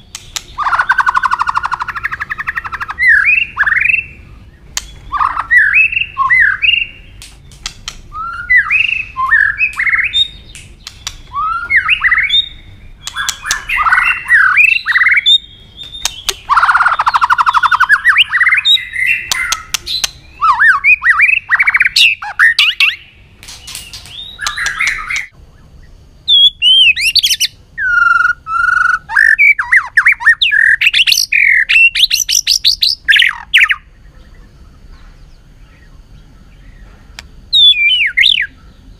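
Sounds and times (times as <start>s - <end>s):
bird clicking notes: 0.0s - 1.9s, 4.7s - 5.5s, 7.1s - 12.4s, 13.0s - 14.2s, 15.8s - 17.7s, 19.2s - 20.2s, 22.7s - 25.3s
bird singing whistled phrases: 0.0s - 7.2s, 8.1s - 23.1s, 24.1s - 25.4s, 26.3s - 34.4s, 37.5s - 38.9s
bird harsh rasping call: 11.1s - 23.2s.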